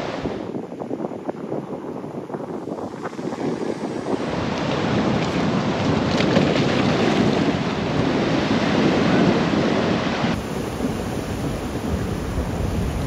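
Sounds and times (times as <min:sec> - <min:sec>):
wind noise on microphone: 0:00.0 - 0:13.0
sea water washing over rocks: 0:02.8 - 0:13.0.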